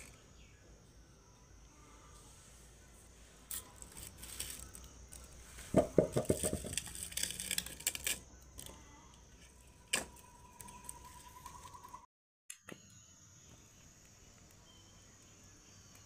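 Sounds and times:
firewood sticks knocking together: 5.7 - 7.1.

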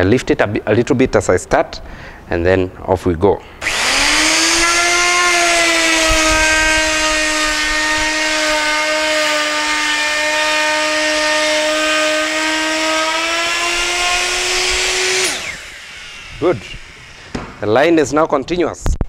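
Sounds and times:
electric router cutting wood: 3.6 - 18.0.

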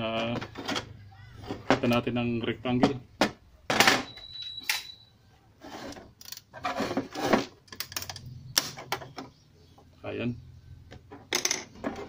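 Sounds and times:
rubbing and scraping plastic: 5.6 - 7.7.

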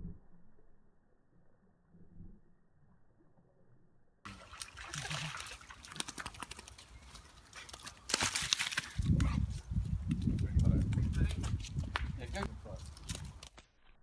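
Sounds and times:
water splashing as dog moves: 4.3 - 6.9.

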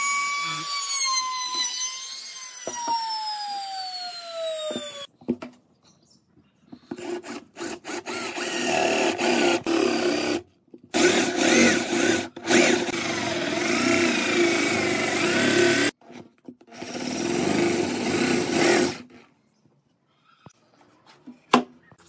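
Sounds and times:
electric drill boring into wood: 0.0 - 5.1, 7.6 - 16.0, 16.7 - 19.1.

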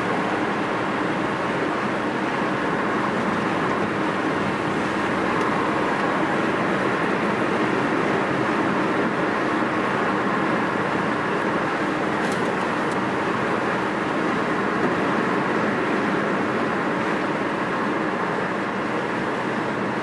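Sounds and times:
road and tyre noise in car: 0.0 - 20.0.

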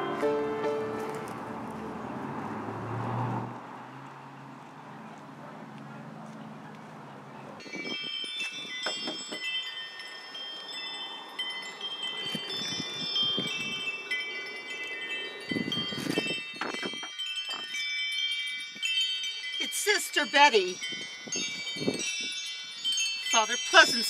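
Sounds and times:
wind chimes ringing: 7.6 - 24.0.

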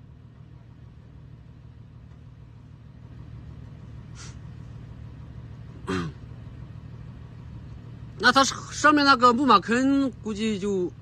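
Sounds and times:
car engine idling: 0.0 - 11.0
brief hiss: 4.1 - 4.4.

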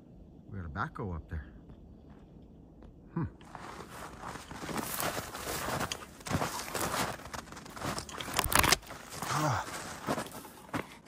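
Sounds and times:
footsteps crunching through snow: 3.4 - 11.0.

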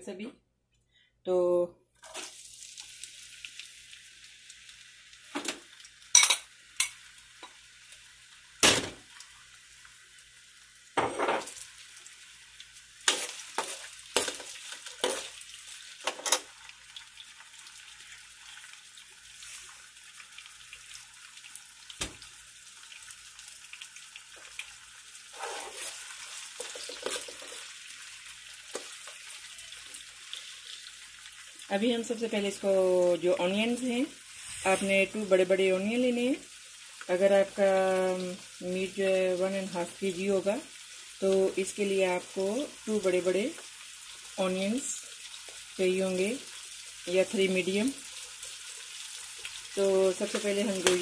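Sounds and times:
onions sizzling in hot oil: 2.0 - 51.0
metal spoon scraping pan: 13.1 - 15.4, 25.4 - 27.6.

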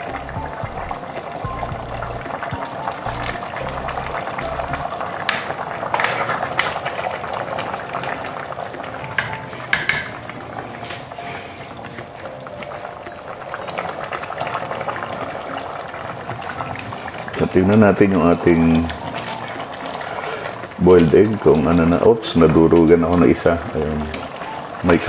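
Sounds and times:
pot simmering and bubbling: 0.0 - 25.0
ladle scraping and knocking pot: 9.1 - 11.0.

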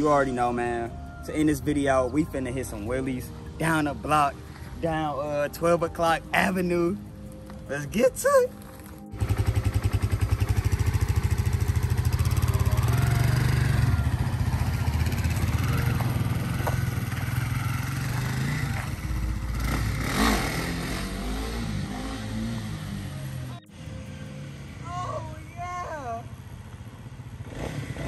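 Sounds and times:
motorcycle engine running: 9.1 - 28.0.

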